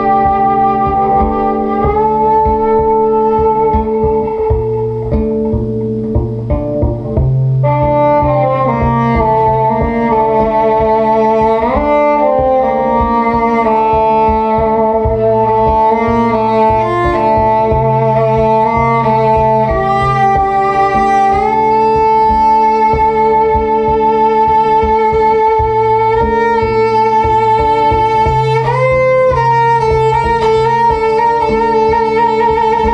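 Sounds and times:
bowed electric cello notes: 0:00.0 - 0:32.9
low rhythmic pulse: 0:00.0 - 0:32.9.

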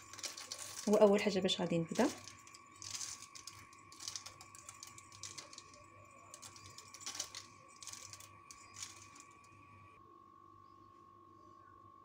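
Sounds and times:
almonds shaken from glass jar: 0:00.0 - 0:09.5.

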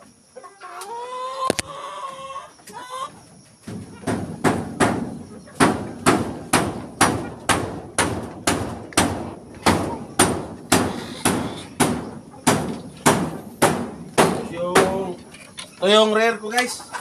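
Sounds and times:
sharp ringing knocks: 0:04.0 - 0:15.2.

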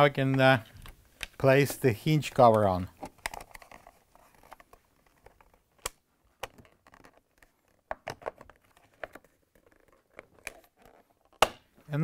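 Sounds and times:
plastic clicks and scrapes: 0:02.5 - 0:11.4.

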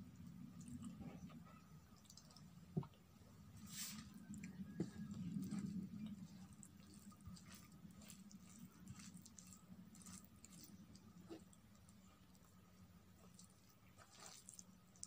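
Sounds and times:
low steady hum: 0:00.0 - 0:15.0
fingers squishing rice: 0:03.6 - 0:15.0.

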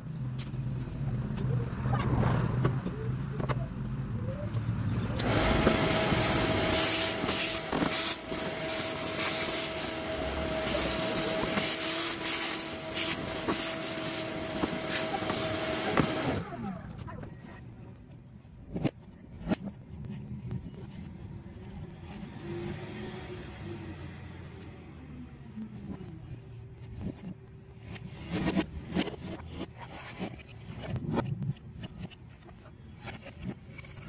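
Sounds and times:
rushing noise with whine: 0:00.0 - 0:17.4
vacuum hose sucking grit: 0:05.2 - 0:16.4.

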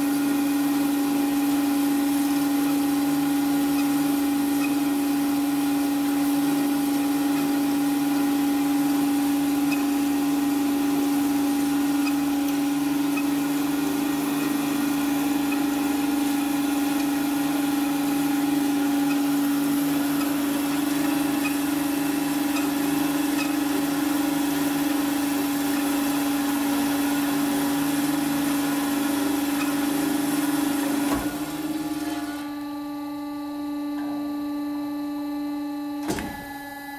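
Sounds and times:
band saw humming: 0:00.0 - 0:36.9.

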